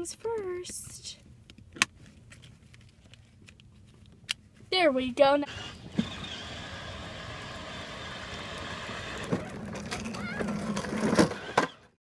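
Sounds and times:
toy wheels rolling on asphalt: 0:05.2 - 0:12.0
toys bumping together: 0:08.7 - 0:11.8.

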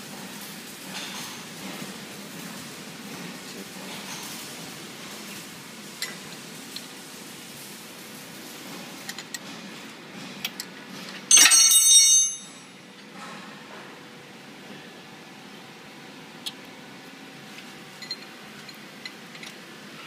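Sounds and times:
loud bell ringing: 0:11.3 - 0:12.8.

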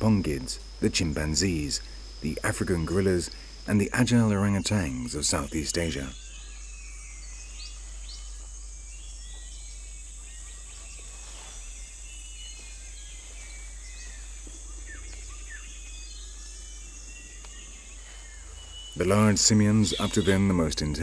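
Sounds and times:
high insect drone: 0:00.0 - 0:21.0
bird chirps and whistles: 0:13.4 - 0:20.5.

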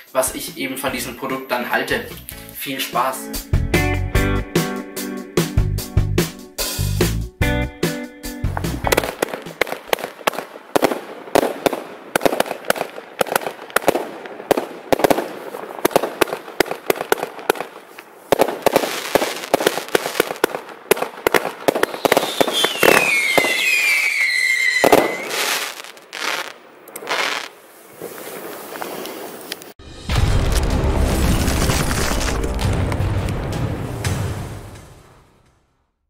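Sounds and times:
firework launches and bursts: 0:08.9 - 0:35.0
falling firework whistle: 0:21.7 - 0:27.5
loud firework bang: 0:24.8 - 0:25.4, 0:29.9 - 0:35.7.

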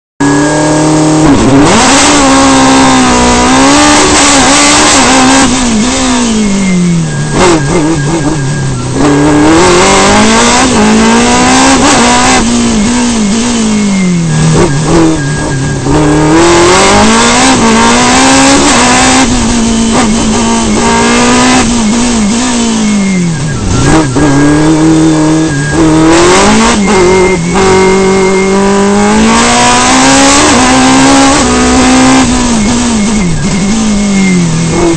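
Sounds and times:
race car engine at full throttle: 0:00.2 - 0:34.9.

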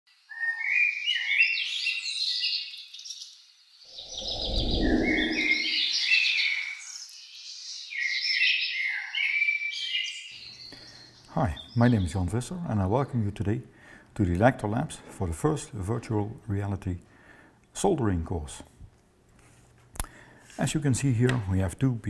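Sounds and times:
birds chirping: 0:03.9 - 0:09.1
low rumble: 0:04.0 - 0:06.2.

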